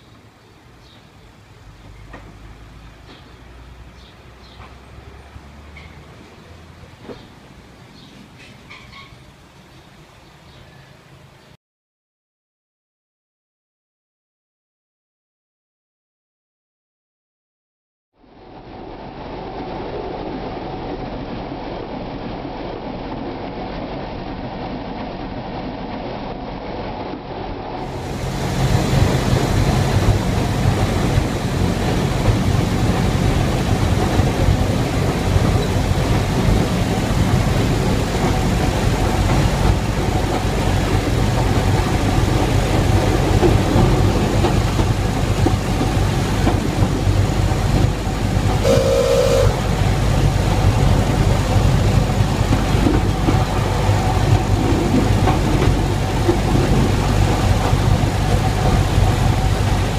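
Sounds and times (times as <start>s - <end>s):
railcar engine hum: 0.0s - 11.6s, 18.2s - 59.9s
wheels rolling on rails: 22.9s - 59.9s
short tonal toot: 48.6s - 49.7s.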